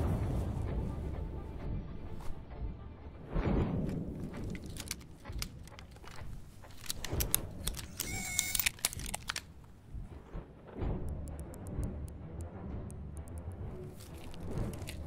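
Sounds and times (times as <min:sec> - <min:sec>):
metallic clicks and clinks: 0:04.6 - 0:09.5.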